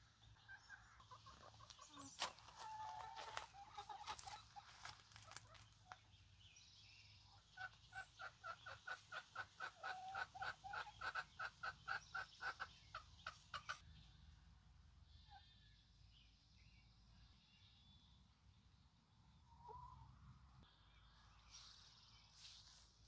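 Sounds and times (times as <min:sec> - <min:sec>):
chicken clucking: 0:00.2 - 0:06.1, 0:07.2 - 0:13.8.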